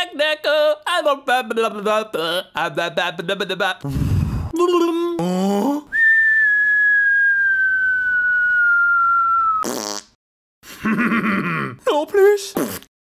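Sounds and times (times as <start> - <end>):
long whistled note sliding down: 6.0 - 9.6.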